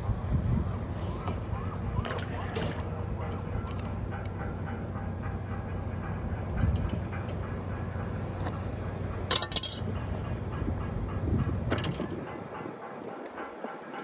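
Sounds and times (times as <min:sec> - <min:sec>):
steady low hum: 0:00.0 - 0:14.0
wire trap clinking: 0:00.7 - 0:03.9, 0:09.3 - 0:10.2.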